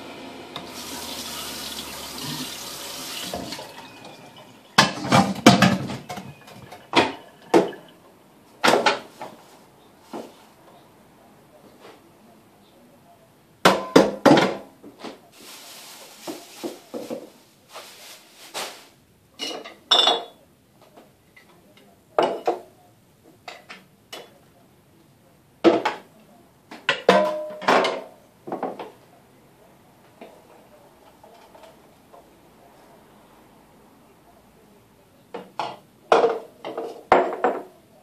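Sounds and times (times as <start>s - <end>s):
steady hiss: 0.0s - 4.4s.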